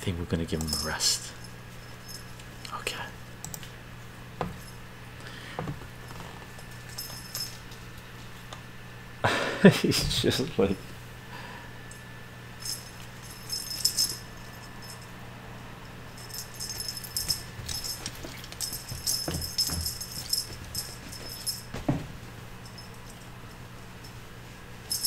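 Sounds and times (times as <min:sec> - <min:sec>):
small bell jingling: 0:00.6 - 0:02.4, 0:06.6 - 0:07.7, 0:12.6 - 0:15.1, 0:15.8 - 0:22.0, 0:22.6 - 0:24.2
paws thumping: 0:16.1 - 0:23.6.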